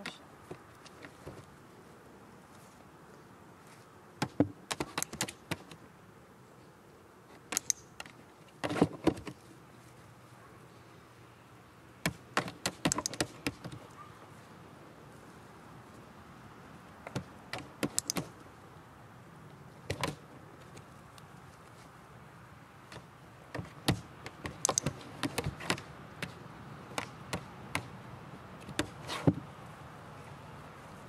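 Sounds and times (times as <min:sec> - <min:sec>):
training clicker clicks: 0:07.5 - 0:08.2, 0:12.4 - 0:13.8, 0:17.1 - 0:18.4, 0:24.2 - 0:27.9.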